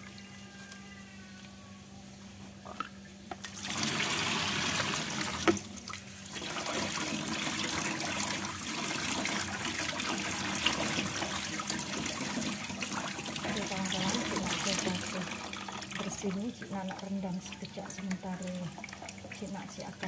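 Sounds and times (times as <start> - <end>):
tap water splashing into sink: 3.3 - 17.1.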